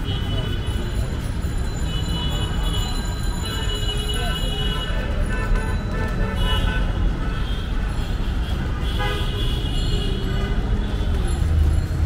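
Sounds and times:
street traffic rumble: 0.0s - 12.0s
vehicle horns tooting: 1.8s - 11.2s.

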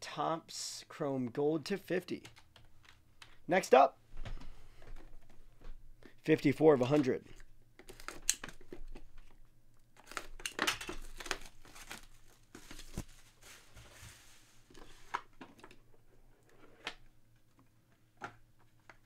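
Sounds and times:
cardboard box rustling and crinkling: 11.0s - 14.7s.

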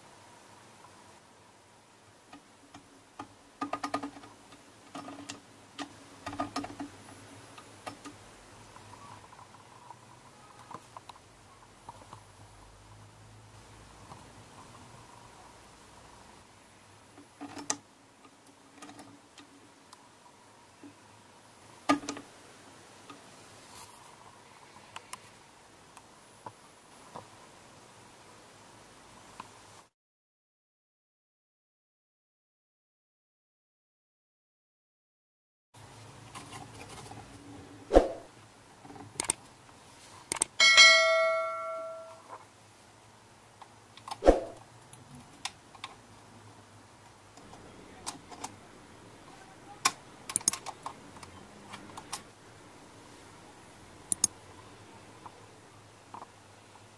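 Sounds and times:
faint room noise: 0.0s - 29.9s, 35.8s - 56.9s
metallic clang ringing like bell: 40.6s - 42.2s.

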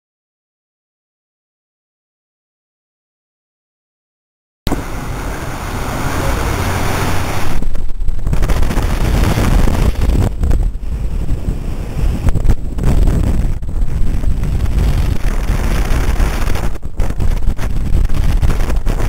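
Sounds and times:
choppy sea rushing: 4.7s - 19.0s
strong wind buffeting microphone: 4.7s - 19.0s.

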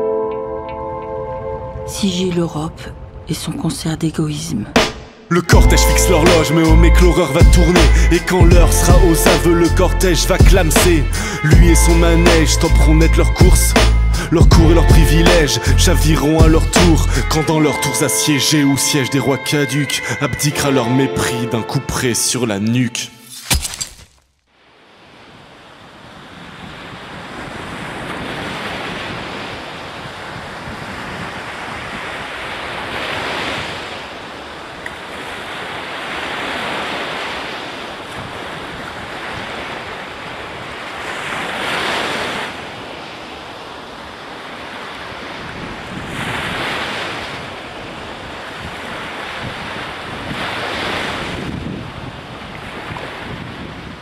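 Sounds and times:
sea waves washing in: 24.6s - 54.0s.

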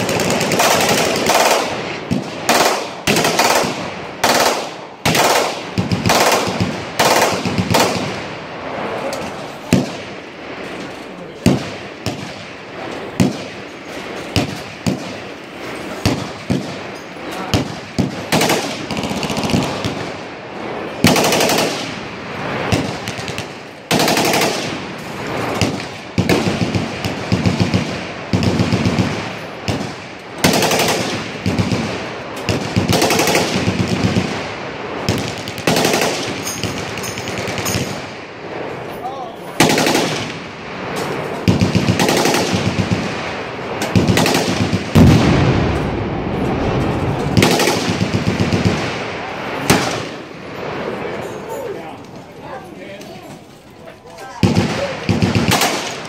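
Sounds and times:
pistol firing automatic bursts: 0.0s - 8.2s, 13.0s - 20.2s, 21.0s - 21.9s, 22.7s - 38.1s, 39.6s - 40.4s, 41.4s - 45.2s, 47.4s - 48.9s, 54.4s - 56.0s.

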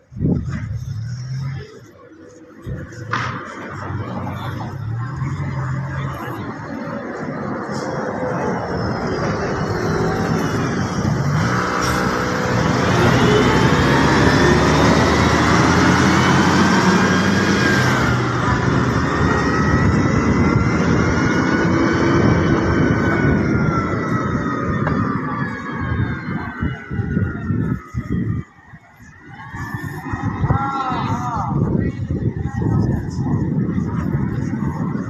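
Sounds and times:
bus engine passing: 0.0s - 35.0s
siren rising and falling: 3.6s - 31.4s.

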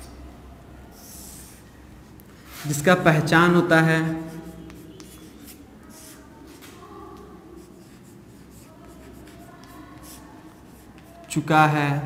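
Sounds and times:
chalk scratching on blackboard: 0.9s - 1.7s, 4.0s - 11.5s.

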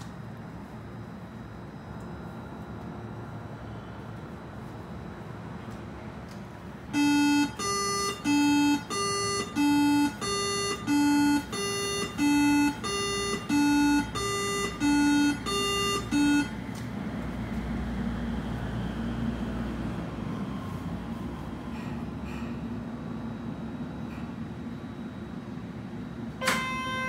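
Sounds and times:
two-tone electronic chime: 7.0s - 16.5s.

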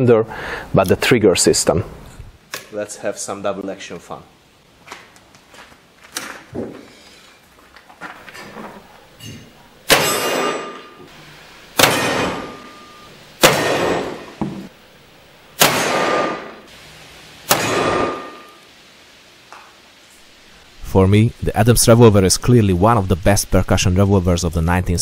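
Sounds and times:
revolver gunshots with echo: 9.9s - 10.8s, 11.8s - 14.4s, 15.6s - 16.7s, 17.5s - 18.5s
steel target ringing: 9.9s - 11.0s, 11.8s - 14.4s, 17.5s - 18.6s.

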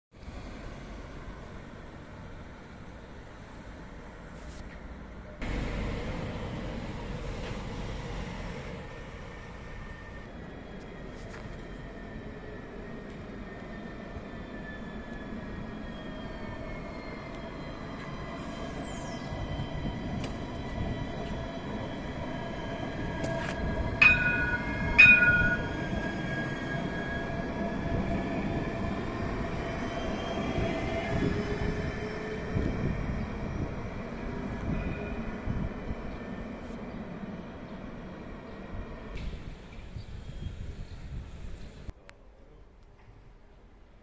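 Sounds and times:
tram electric drive whine: 0.2s - 41.9s
tram warning gong: 23.9s - 26.2s.

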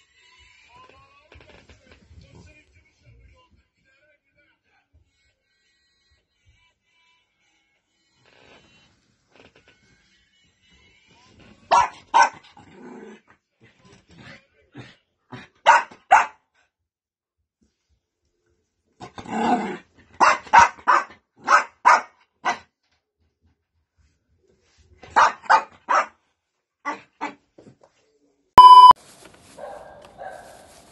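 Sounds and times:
small dog barking: 11.7s - 12.4s, 15.6s - 16.4s, 20.2s - 22.6s, 25.1s - 26.2s, 29.6s - 30.8s
dog growling bark: 11.7s - 13.3s, 14.8s - 16.4s, 19.0s - 22.7s, 25.1s - 26.1s, 26.9s - 27.4s.

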